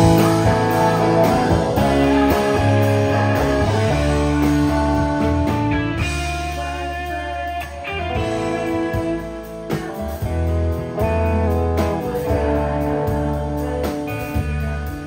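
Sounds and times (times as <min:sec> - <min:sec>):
drums: 0:00.0 - 0:15.0
electric guitar: 0:00.0 - 0:15.0.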